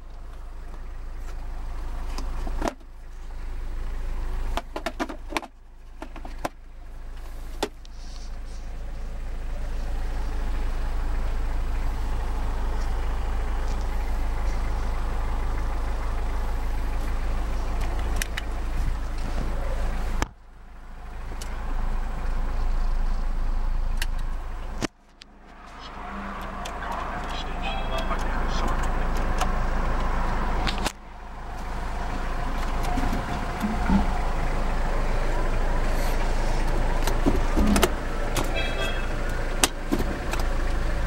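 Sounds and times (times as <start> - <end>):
diesel engine idling: 0.0 - 41.0
sharp clicks and knocks: 4.6 - 6.6, 36.7 - 38.5.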